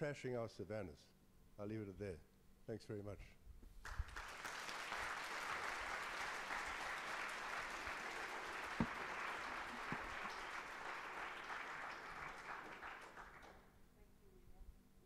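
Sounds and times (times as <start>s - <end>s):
audience applauding: 3.8s - 13.7s.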